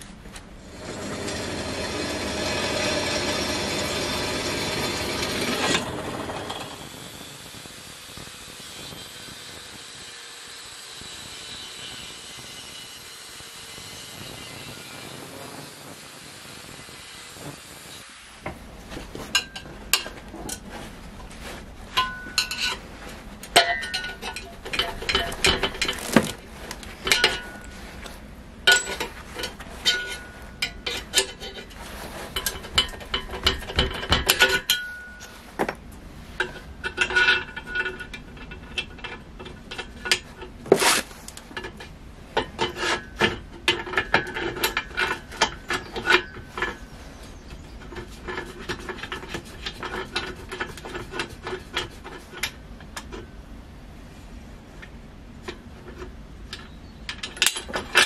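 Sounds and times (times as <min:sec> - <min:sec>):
angle grinder cutting steel: 0:00.6 - 0:18.3
steel parts clinking: 0:19.3 - 0:22.8, 0:23.4 - 0:27.8, 0:28.6 - 0:35.8, 0:36.4 - 0:53.3, 0:54.8 - 0:58.0.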